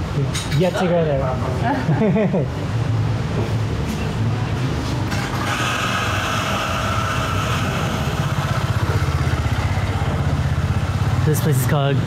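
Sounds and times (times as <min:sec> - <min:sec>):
motorbike engine running: 0:05.1 - 0:12.0.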